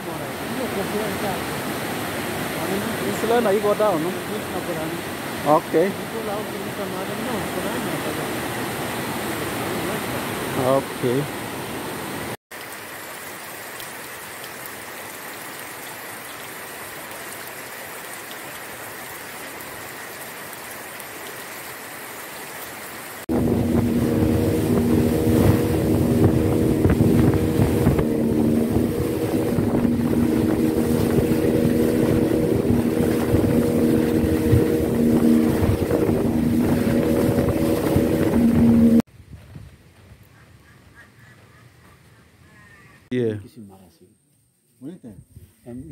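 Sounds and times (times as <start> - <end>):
boat motor running: 23.3 - 39.1
wind noise: 23.3 - 40.2.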